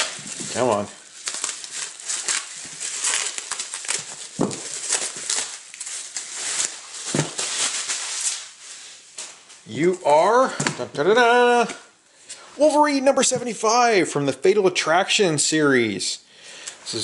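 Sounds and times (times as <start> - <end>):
bubble wrap crumpling: 0.0 - 10.4.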